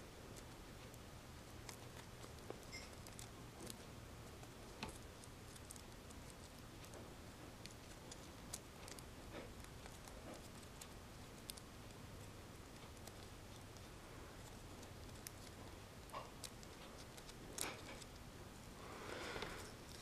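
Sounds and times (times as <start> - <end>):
low room hiss: 0.0 - 20.0
folded paper clicking and crinkling: 12.8 - 18.3.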